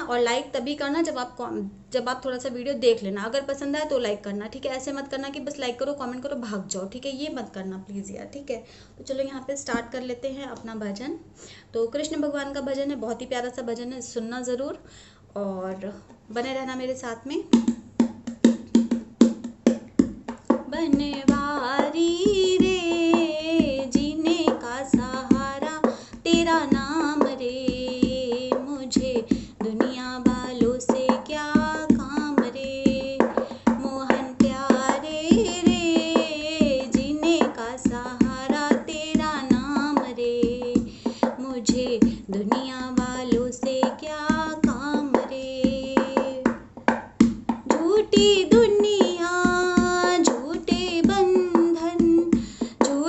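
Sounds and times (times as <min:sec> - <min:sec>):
woman singing devotional song: 0:00.0 - 0:14.8, 0:20.5 - 0:53.0
hand percussion beat: 0:17.5 - 0:53.0.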